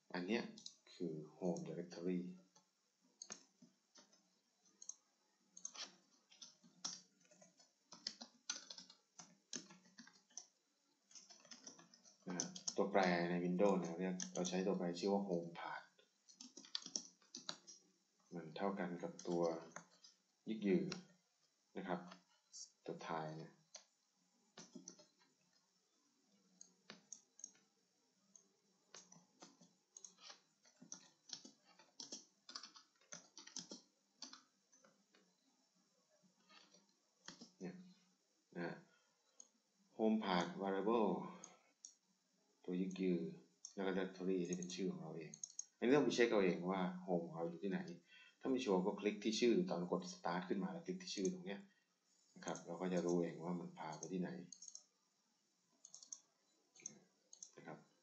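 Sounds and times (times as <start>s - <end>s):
typing on computer keyboard: 3.2s - 5.0s, 5.6s - 10.5s, 11.1s - 13.0s, 13.6s - 14.7s, 16.3s - 17.8s, 19.0s - 20.2s, 24.6s - 25.3s, 28.3s - 34.9s, 36.5s - 37.6s, 44.5s - 45.8s, 53.9s - 54.9s, 55.8s - 56.2s, 56.8s - 57.6s
mouse clicks: 11.1s - 14.6s, 44.4s - 45.8s, 53.9s - 54.9s, 55.8s - 57.7s
keyboard keystrokes: 28.9s - 34.4s.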